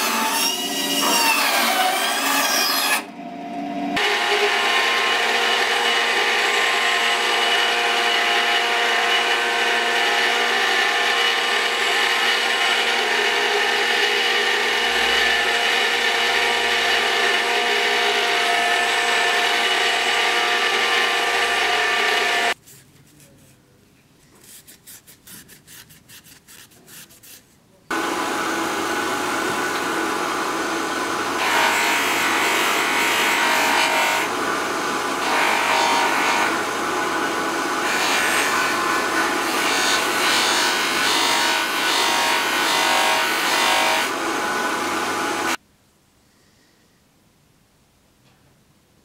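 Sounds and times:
sanding wheel motor hum: 0:04.0 - 0:22.6, 0:27.9 - 0:45.6.

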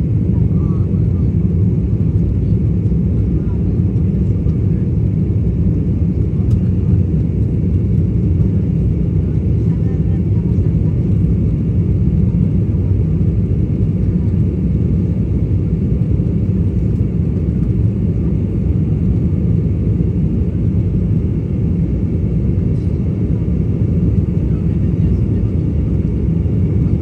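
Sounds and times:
airliner cabin drone: 0:00.0 - 0:27.0.

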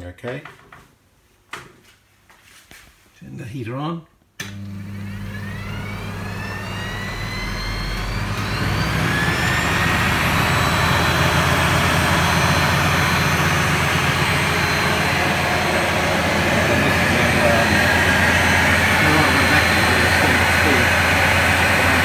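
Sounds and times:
electric motor whine: 0:04.5 - 0:22.0.

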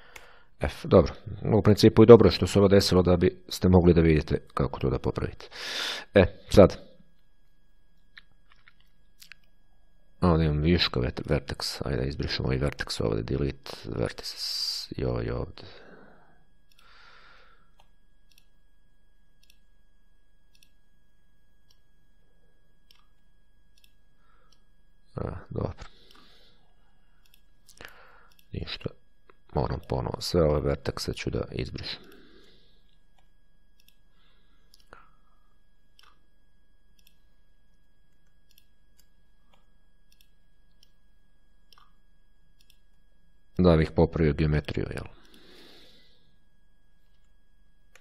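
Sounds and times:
low electrical hum: 0:00.0 - 0:48.0
thin high whine: 0:09.7 - 0:48.0
computer mouse clicks: 0:17.8 - 0:18.5, 0:19.4 - 0:19.7, 0:20.5 - 0:20.8, 0:22.8 - 0:24.6, 0:27.2 - 0:28.5, 0:32.9 - 0:34.0, 0:34.7 - 0:35.0, 0:35.9 - 0:36.2, 0:37.0 - 0:37.2, 0:38.2 - 0:41.0, 0:41.7 - 0:42.0, 0:42.6 - 0:43.0.

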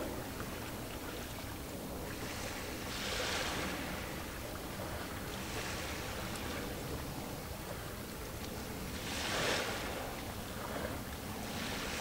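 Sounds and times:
sea waves washing in: 0:08.8 - 0:12.0.

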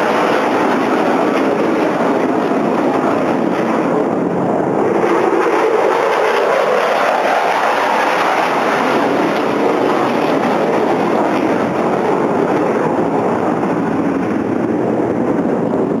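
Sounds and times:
jet engine roar overhead: 0:00.0 - 0:16.0.

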